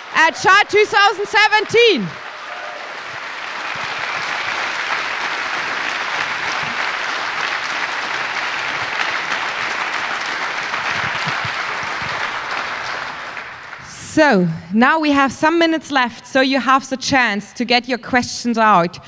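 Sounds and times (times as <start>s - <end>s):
large audience applauding: 0.0s - 13.9s.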